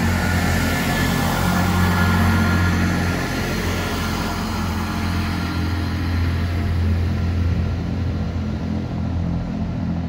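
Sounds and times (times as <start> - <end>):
diesel train passing: 0.0 - 10.0.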